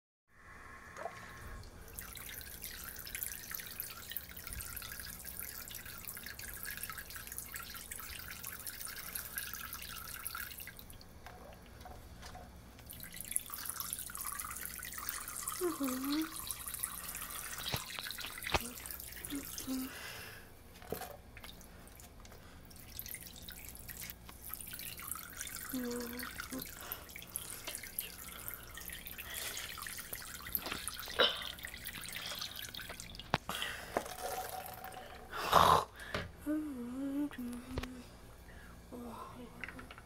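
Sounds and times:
water dripping into sink water: 1.0s - 19.7s, 20.9s - 33.4s.

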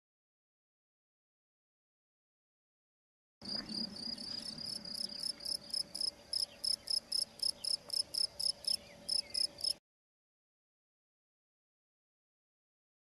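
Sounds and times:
cricket chirping: 3.4s - 9.8s.

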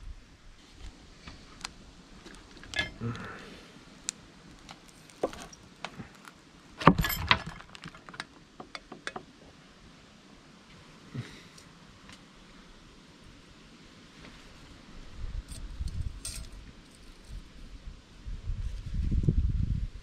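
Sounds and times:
metal tools clinking on engine parts: 2.7s - 3.0s, 6.8s - 7.8s, 16.2s - 17.4s.

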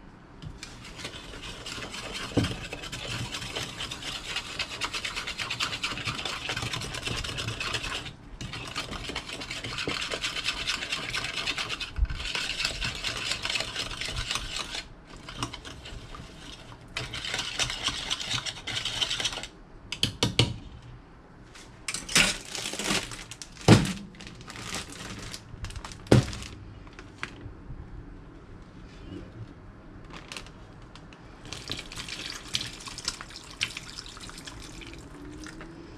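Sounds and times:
spoon stirring marinade in bowl: 0.6s - 19.4s.

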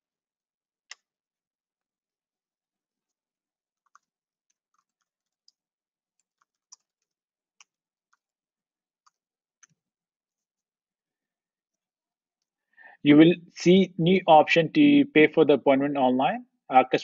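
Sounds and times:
computer keyboard typing: 3.8s - 8.4s.

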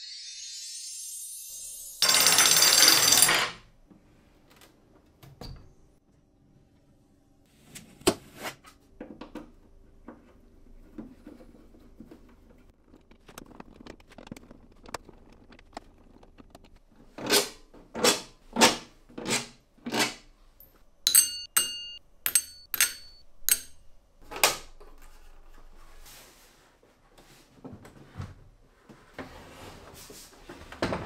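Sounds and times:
sharp clicks with metallic rings: 21.1s - 23.8s.

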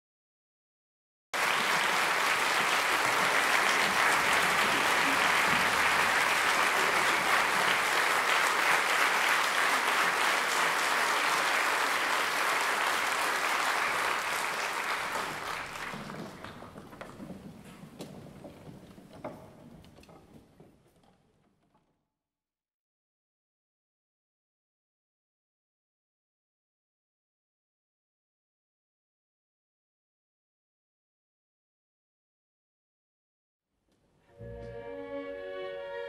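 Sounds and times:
audience applauding: 1.4s - 17.4s.

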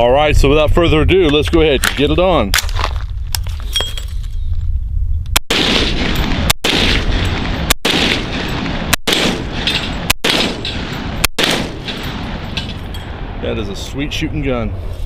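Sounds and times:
rifle shots echoing: 5.4s - 12.9s.

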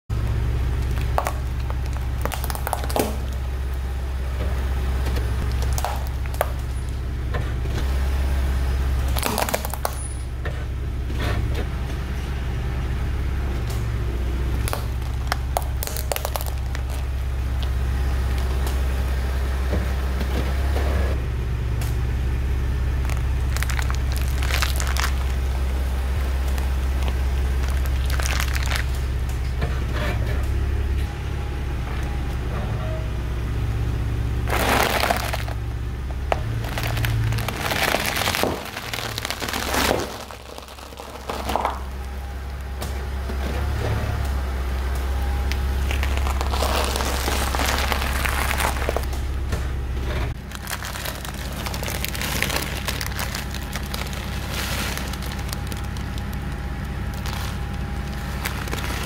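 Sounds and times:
car engine rumble: 0.0s - 59.0s
markers cracking under tyre: 0.6s - 3.8s, 5.4s - 7.0s, 9.0s - 10.2s, 14.4s - 18.9s, 22.9s - 29.5s, 34.4s - 43.0s, 44.2s - 49.6s, 50.3s - 59.0s
loud crunch: 0.7s - 3.8s, 5.4s - 7.0s, 9.0s - 10.2s, 14.5s - 18.8s, 23.0s - 29.4s, 34.4s - 35.6s, 36.2s - 43.7s, 44.7s - 59.0s.

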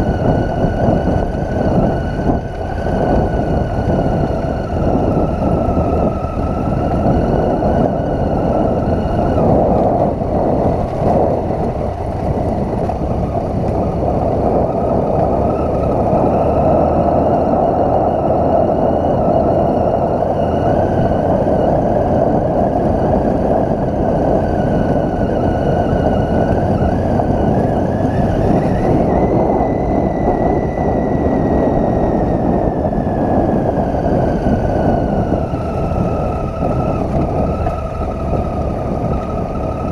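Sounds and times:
motorcycle engine running: 0.0s - 39.9s
wind noise on microphone: 0.0s - 39.9s.

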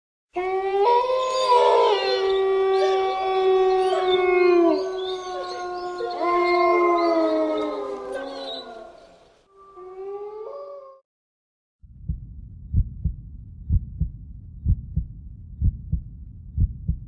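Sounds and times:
dogs howling: 0.4s - 11.0s.

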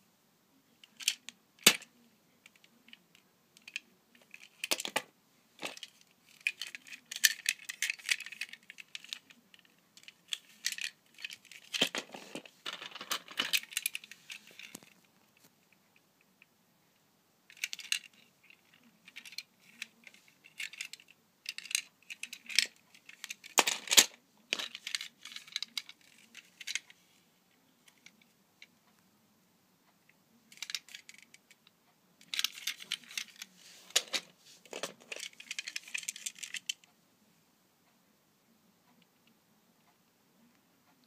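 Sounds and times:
plastic toy train cars clicking: 0.8s - 15.0s, 17.5s - 27.0s, 30.5s - 36.9s.

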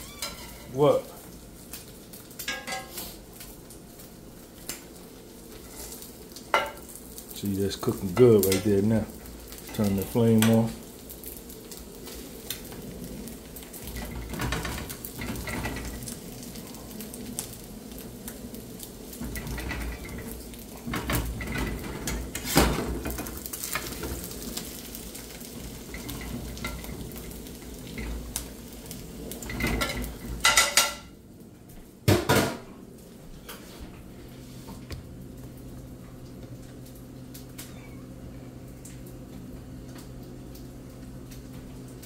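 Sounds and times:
bacon sizzling: 0.0s - 42.0s.

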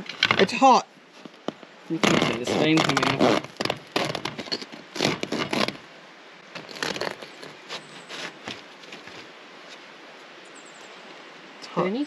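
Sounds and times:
knife sawing through bread crust: 5.0s - 5.8s.

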